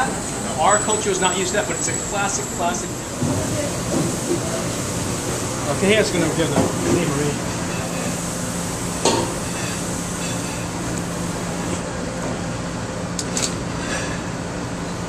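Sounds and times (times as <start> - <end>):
kitchen ventilation hum: 0.0 - 15.0.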